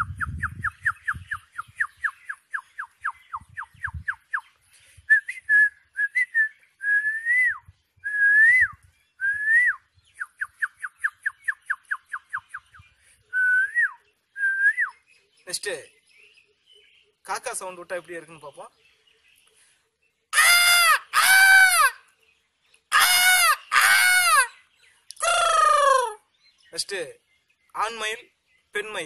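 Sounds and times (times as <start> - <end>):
man whistling bird calls: 0.0 - 15.1.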